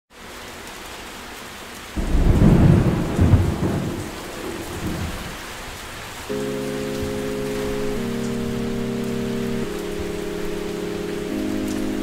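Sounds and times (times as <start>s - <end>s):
steady rain: 0.1s - 12.0s
thunder rumble: 2.0s - 5.9s.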